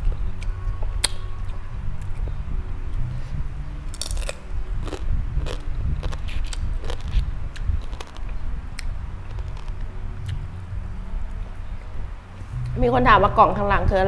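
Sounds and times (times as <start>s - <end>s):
crunching and chewing crisp food: 3.9s - 10.4s.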